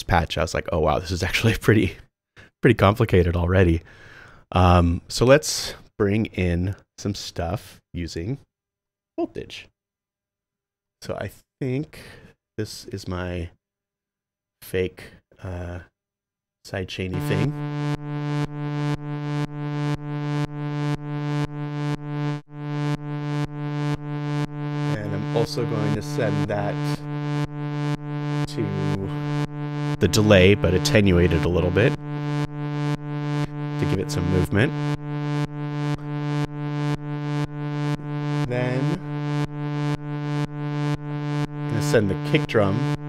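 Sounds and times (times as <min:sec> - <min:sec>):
pumping synthesizer drone: 0:17.1 - 0:43.0.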